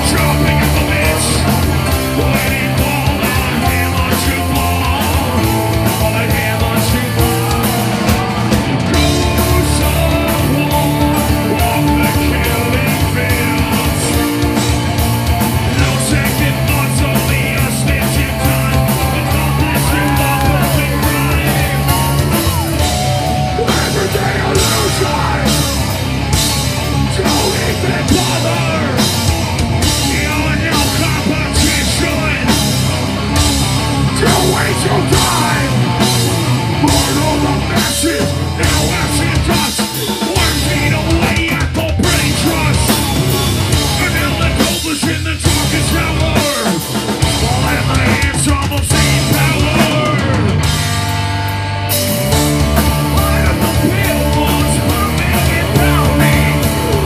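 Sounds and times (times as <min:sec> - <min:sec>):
person singing and shouting: 0:00.0 - 0:15.0, 0:15.6 - 0:50.7, 0:52.1 - 0:57.0
rock band playing: 0:00.0 - 0:57.0.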